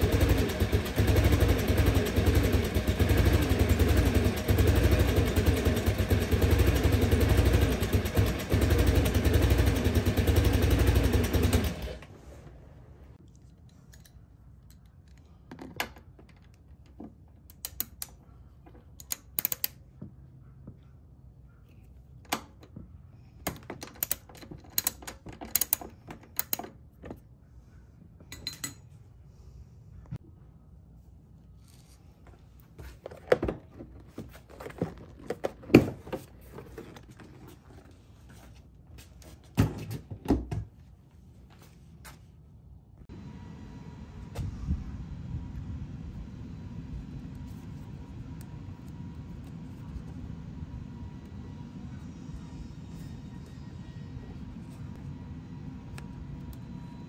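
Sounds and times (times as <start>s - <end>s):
scooter seat clunks and plastic rattles: 32.3s - 40.8s.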